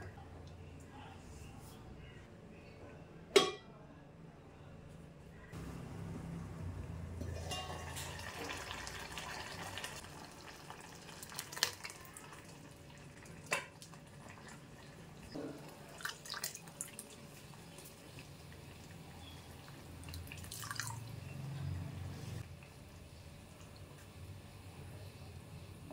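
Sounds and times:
bubbles popping in a pot: 7.3s - 21.1s.

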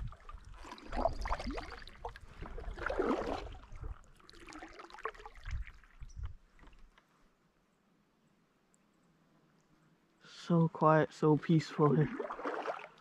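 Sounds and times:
canoe paddle strokes in water: 0.0s - 7.0s, 12.0s - 13.0s.

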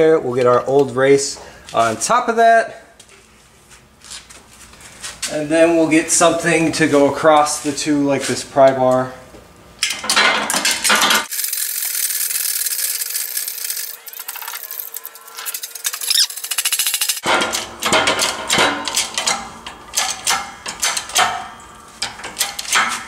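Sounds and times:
hydraulic press clicking and clanking: 15.7s - 23.0s.

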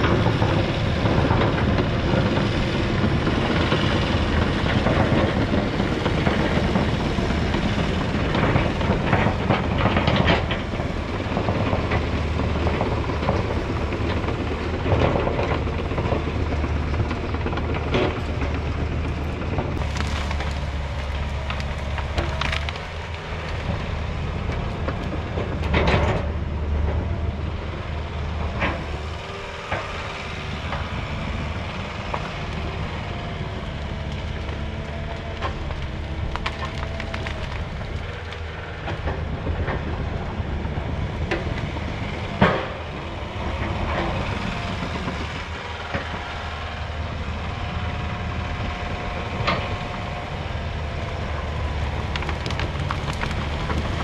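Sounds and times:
bulldozer diesel engine running: 0.0s - 54.0s
wood cracking and snapping: 1.0s - 26.2s, 28.7s - 40.0s, 50.8s - 54.0s.

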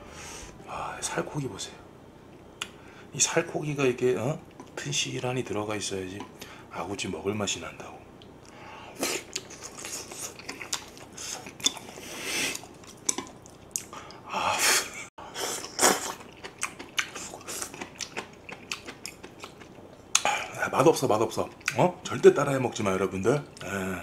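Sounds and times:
man chewing food: 8.2s - 14.3s, 15.2s - 20.6s, 21.4s - 21.8s.

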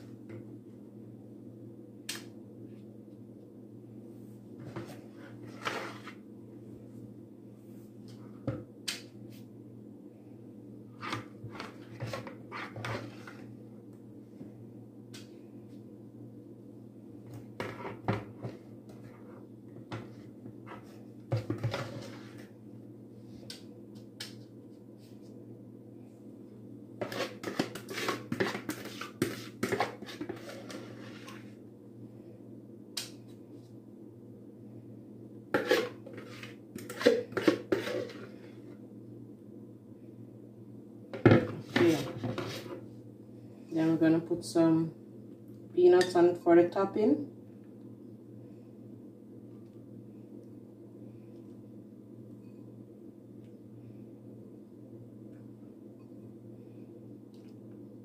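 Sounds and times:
steady low hum: 0.0s - 58.0s
spoon scraping plastic bowl: 4.7s - 6.2s, 11.0s - 13.5s, 17.6s - 22.5s, 27.0s - 31.5s, 35.6s - 38.5s, 41.6s - 42.8s.

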